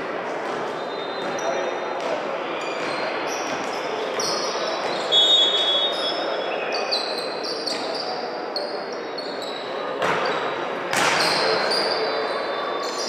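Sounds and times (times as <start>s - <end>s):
crowd murmur: 0.0s - 13.0s
shoes squeaking on court floor: 0.4s - 13.0s
loud high squeal: 4.2s - 9.6s.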